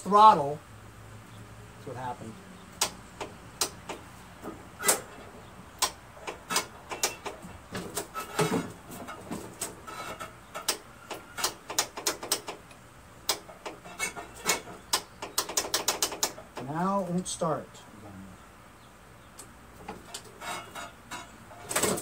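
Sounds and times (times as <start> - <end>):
lawn tractor clicks and knocks: 2.7 - 17.2, 19.3 - 22.0.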